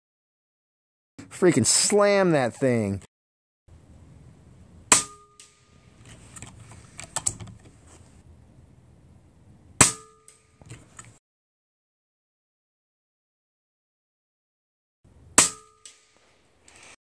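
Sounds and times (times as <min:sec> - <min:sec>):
steel target ringing: 0:04.9 - 0:05.8, 0:09.8 - 0:10.5, 0:15.4 - 0:16.2.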